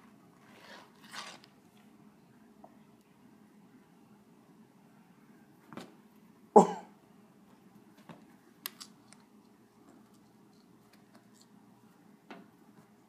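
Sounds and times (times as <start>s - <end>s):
person coughing: 6.6s - 7.0s.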